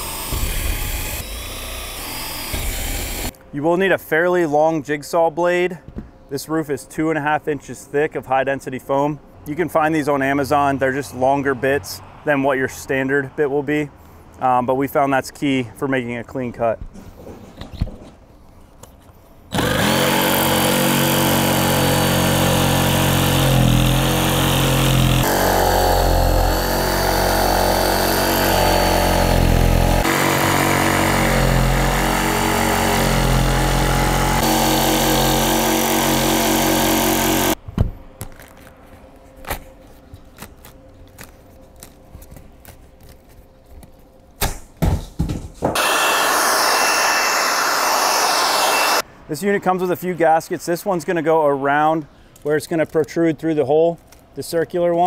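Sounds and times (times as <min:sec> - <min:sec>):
jigsaw cutting foam: 0:00.0 - 0:03.3, 0:19.5 - 0:37.6, 0:45.8 - 0:49.0
loud steady noise: 0:45.8 - 0:49.0.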